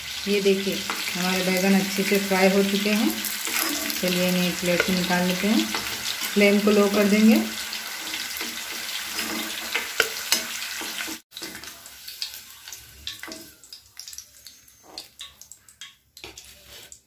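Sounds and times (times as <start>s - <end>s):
hot oil sizzling: 0.0s - 17.0s
metal spoon scraping pan: 0.8s - 11.6s.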